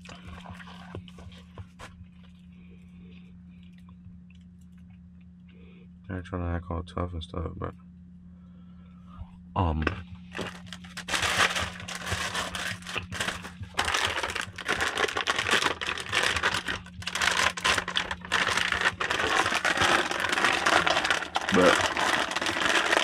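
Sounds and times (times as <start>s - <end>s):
steady low hum: 0.0s - 23.0s
plastic packaging crinkling: 10.3s - 23.0s.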